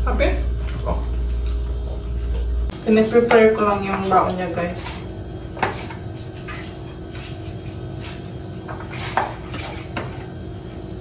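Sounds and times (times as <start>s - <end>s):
utensil scraping frying pan: 4.8s - 10.3s.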